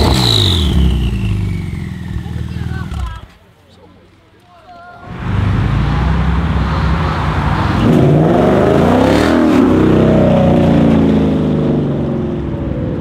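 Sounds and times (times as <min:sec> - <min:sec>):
sports car engine accelerating: 0:05.1 - 0:13.0.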